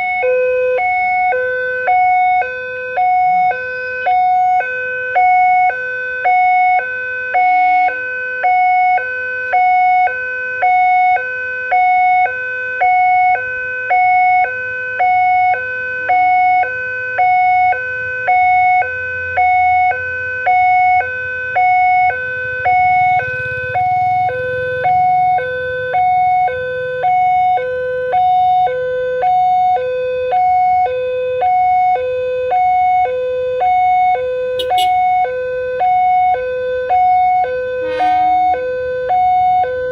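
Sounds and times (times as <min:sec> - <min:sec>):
two-tone level crossing alarm: 0:00.0 - 0:39.9
low rumble: 0:37.7 - 0:38.7.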